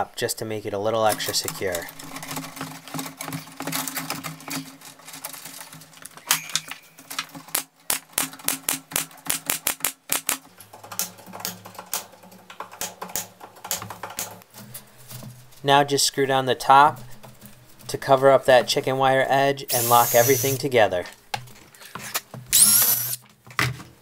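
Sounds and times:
pneumatic staple gun firing: 0:19.7 - 0:20.6, 0:22.5 - 0:23.2.

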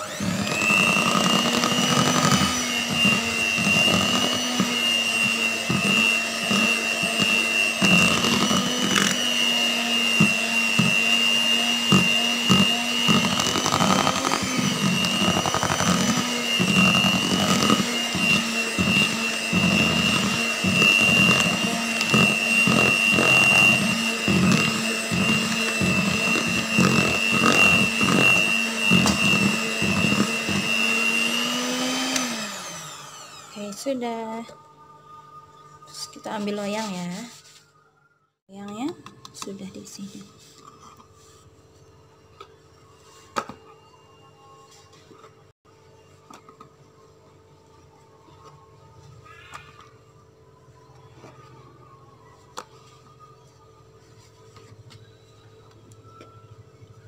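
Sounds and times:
electric hand mixer whisking: 0:00.0 - 0:34.4.

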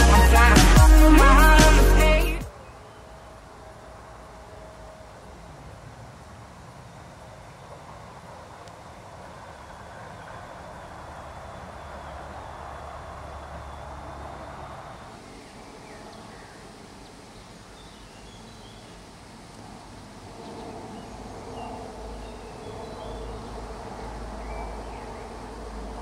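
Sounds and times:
steady buzz: 0:00.0 - 0:02.5
small birds chirping: 0:20.4 - 0:25.6.

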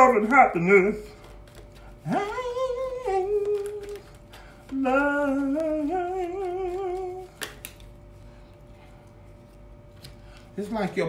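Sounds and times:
person humming a slow tune: 0:02.0 - 0:07.5.

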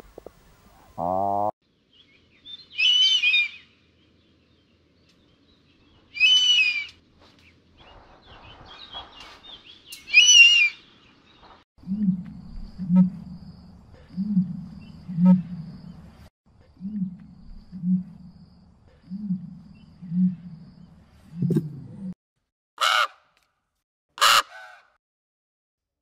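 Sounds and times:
ostrich low pulsing call: 0:11.8 - 0:16.1, 0:16.7 - 0:20.8.

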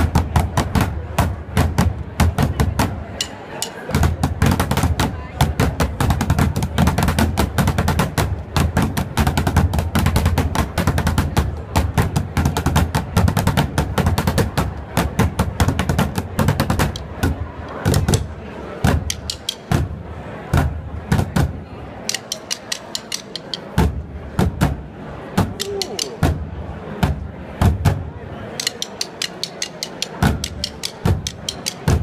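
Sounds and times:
drumsticks beating plastic bin: 0:00.0 - 0:19.9, 0:22.1 - 0:24.8, 0:25.4 - 0:26.4, 0:28.6 - 0:32.0
drumsticks clicking together: 0:03.2 - 0:03.9, 0:19.1 - 0:19.7, 0:22.1 - 0:23.8, 0:25.5 - 0:26.2, 0:28.6 - 0:32.0.

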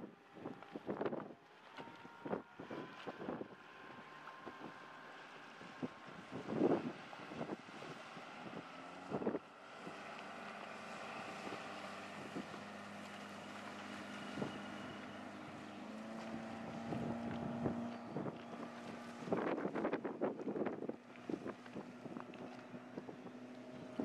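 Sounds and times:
motorboat engine running: 0:00.0 - 0:24.0
wind buffeting microphone: 0:00.4 - 0:24.0.

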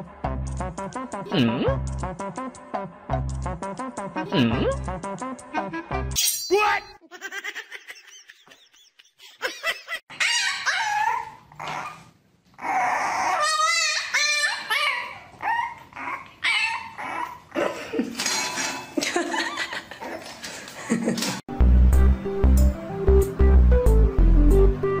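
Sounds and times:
puppy yelping and whining: 0:10.1 - 0:17.6.

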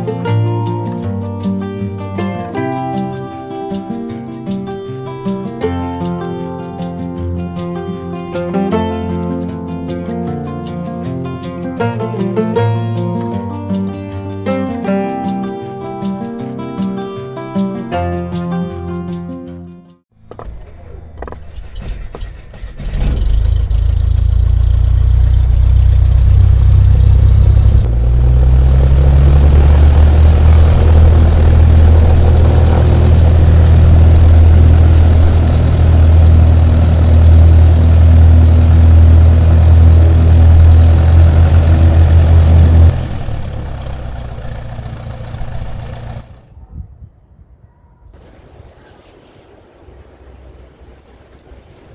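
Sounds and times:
propeller airplane engine: 0:20.3 - 0:46.5.

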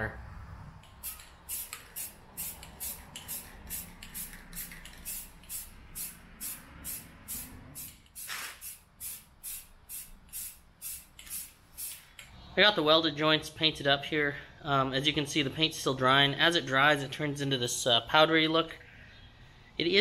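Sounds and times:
aerosol spray can hissing: 0:00.8 - 0:12.2.

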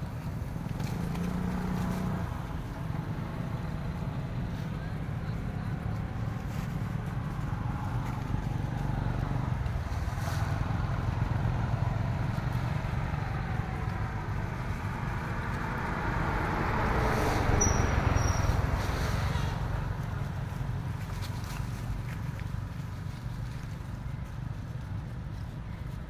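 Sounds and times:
vehicle engine rumbling: 0:00.0 - 0:26.0.

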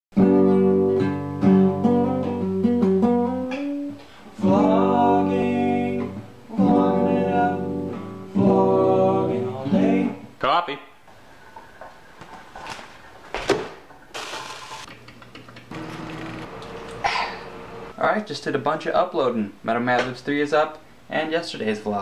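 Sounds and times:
classical guitar chords and notes: 0:00.2 - 0:04.7.

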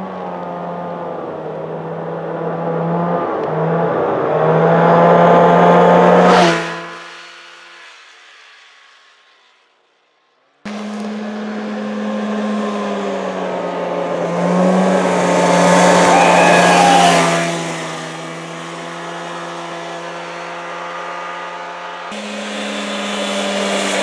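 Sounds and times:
go-kart engine driving past: 0:10.7 - 0:24.0.

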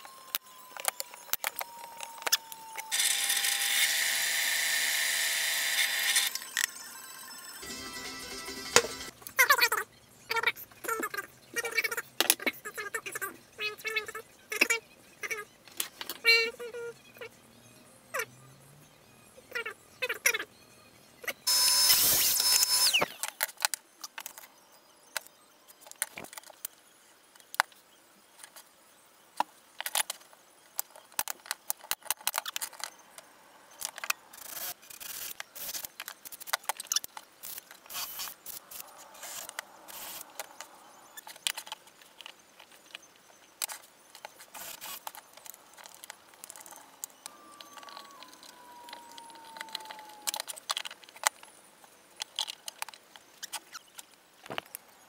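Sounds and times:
cordless drill driving screws: 0:02.8 - 0:06.4
mitre saw cutting: 0:02.9 - 0:06.4
wooden pieces and tools clicking: 0:29.4 - 0:54.9.

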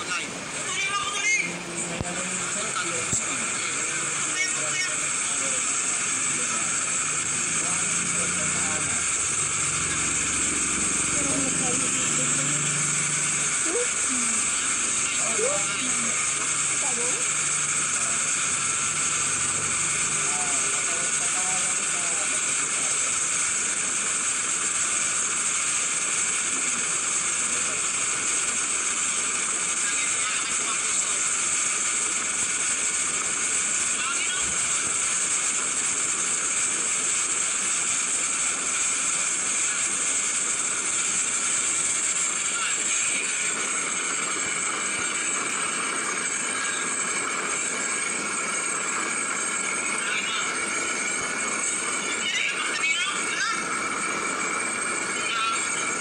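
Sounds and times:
boat engine running: 0:07.1 - 0:20.8.

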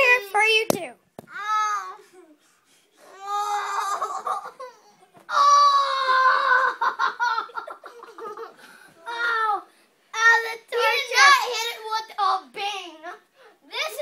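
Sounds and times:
child crying and wailing: 0:01.3 - 0:02.2, 0:03.1 - 0:04.7, 0:05.3 - 0:07.0, 0:09.0 - 0:09.7.

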